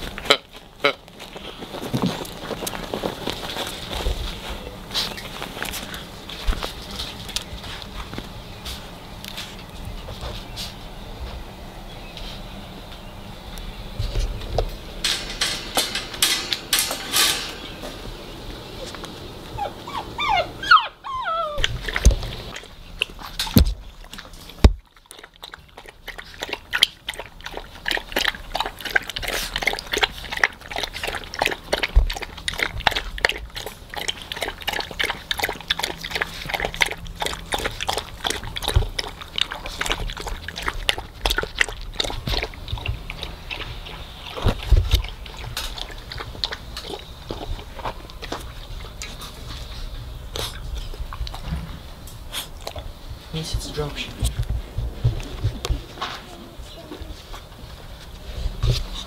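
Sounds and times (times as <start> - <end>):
puppy whimpering: 19.5 - 21.9
puppy lapping water: 21.4 - 51.5, 52.2 - 53.0.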